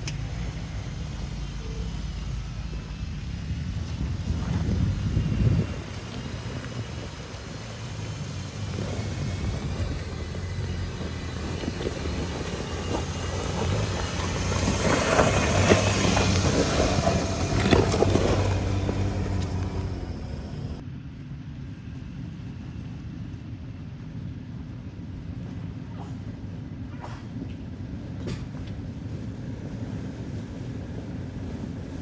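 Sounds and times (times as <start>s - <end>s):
off-road vehicle engine running: 0.0s - 21.0s
tyres crunching on rock: 6.1s - 20.8s.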